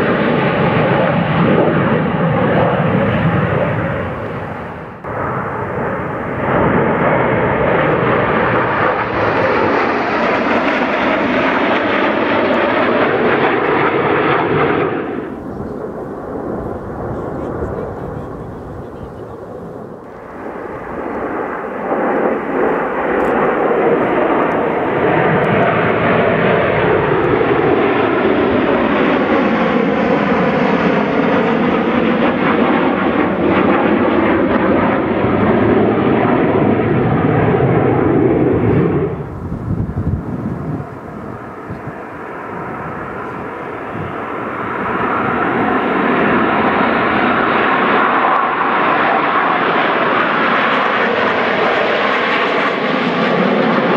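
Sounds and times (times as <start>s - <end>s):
jet engines roaring overhead: 0.0s - 53.9s.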